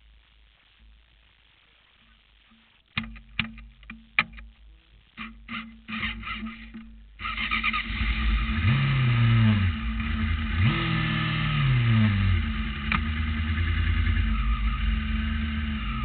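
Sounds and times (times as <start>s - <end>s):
engine throttle blips: 5.5s - 16.0s
race car engine starting and idling: 5.9s - 16.0s.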